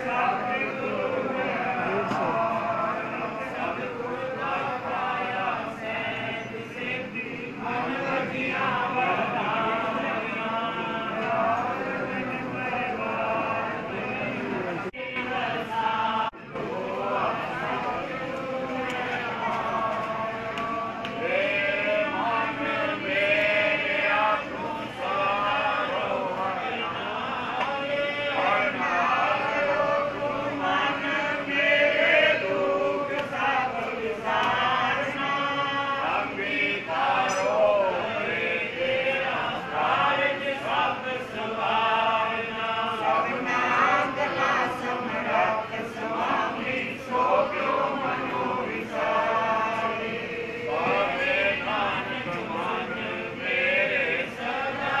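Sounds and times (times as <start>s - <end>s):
men chanting together: 0.0s - 55.0s.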